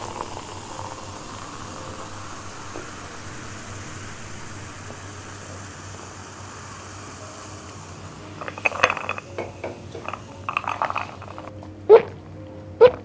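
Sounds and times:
can and glass clinking: 0.0 - 3.5, 7.4 - 12.1
soda fizzing: 0.0 - 12.2.

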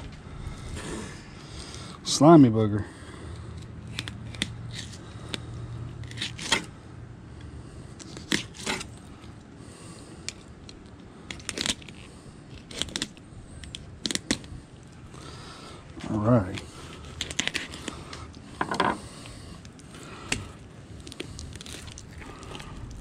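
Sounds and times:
knife scraping over fish bones: 6.0 - 6.7, 8.0 - 9.0.

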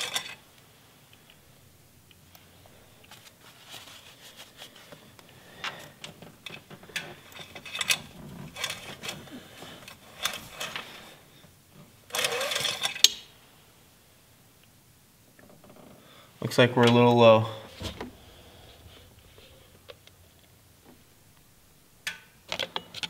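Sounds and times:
paper towel rustling: 2.7 - 6.2.

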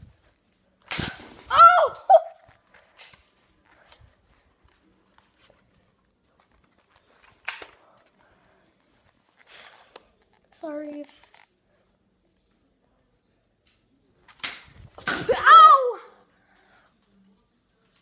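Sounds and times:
child's high cry: 1.5 - 2.4, 15.2 - 16.2.

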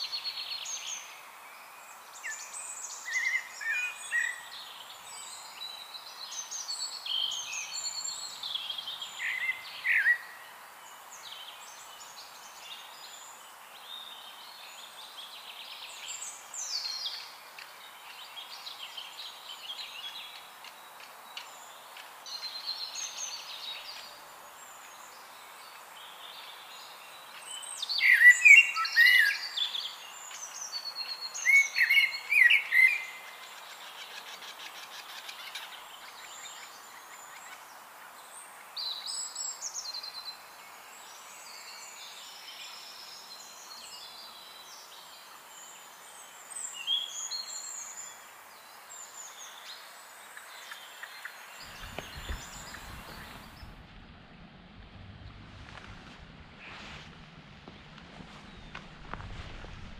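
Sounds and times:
songbirds singing: 0.0 - 53.8, 57.6 - 59.9
steady soft hiss: 0.0 - 59.9.

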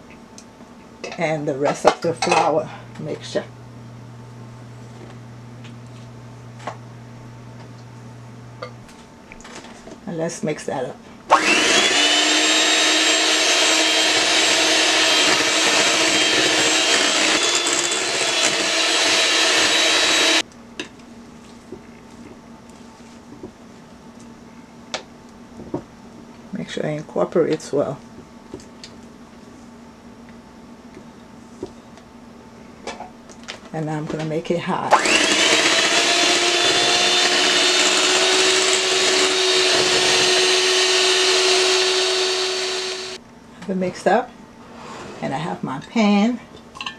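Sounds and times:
electric mixer whining: 11.3 - 20.4, 34.9 - 43.2
beaters churning thick batter: 11.4 - 20.4, 34.9 - 43.2.

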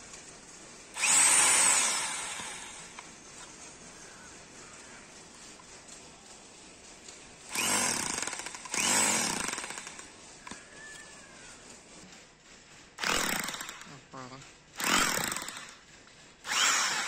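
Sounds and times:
rotary hammer chiselling ground: 0.0 - 17.0
drill bit on concrete: 1.0 - 3.0, 7.5 - 11.0, 13.0 - 17.0.

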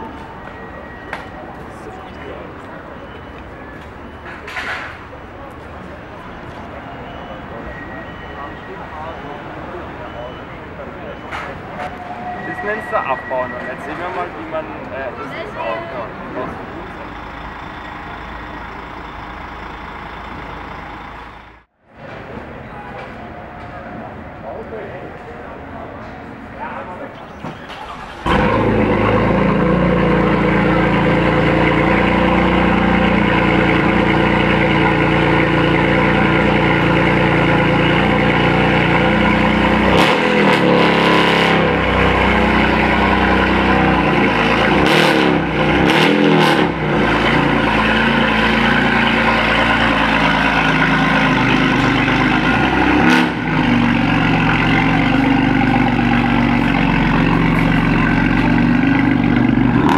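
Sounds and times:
car engine idling and revving: 16.3 - 21.7, 27.8 - 59.9.

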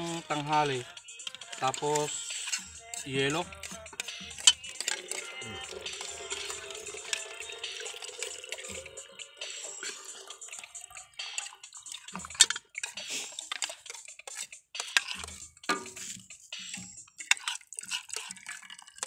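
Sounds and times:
spoon scraping a plate: 12.2 - 16.2.

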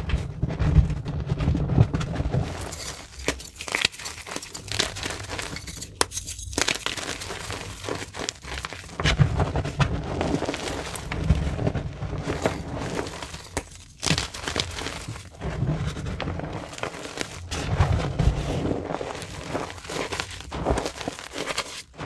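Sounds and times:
powder rustling: 1.6 - 22.0
chalk crunching in hands: 2.5 - 9.0, 12.3 - 15.4, 16.4 - 21.9.

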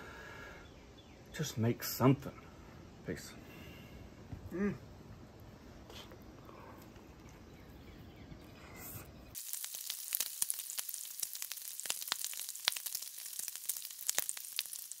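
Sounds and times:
bacon sizzling on a griddle: 9.3 - 15.0.

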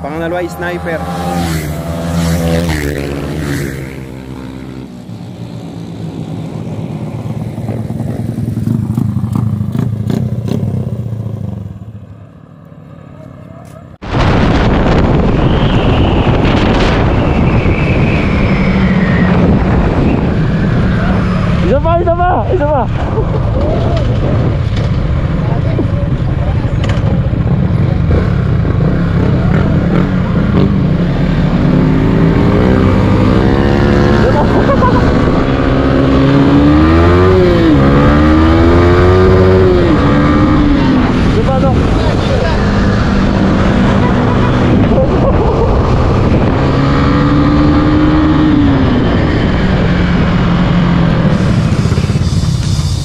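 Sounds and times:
scooter engine accelerating: 0.0 - 12.0, 26.0 - 53.0
wind buffeting microphone: 14.0 - 33.5, 34.2 - 53.0
small motorcycle engine running: 51.2 - 53.0.

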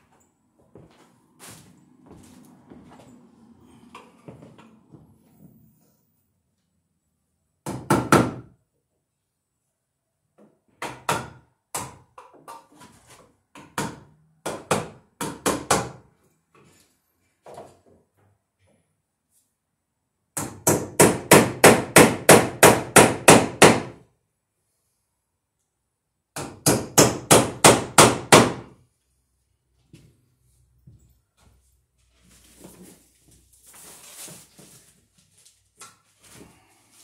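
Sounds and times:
hammer driving nail into wood: 20.4 - 24.0, 26.3 - 28.8.

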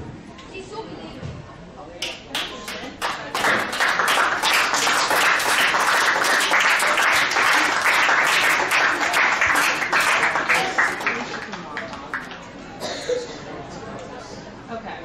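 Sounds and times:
spectators clapping: 2.0 - 12.5.

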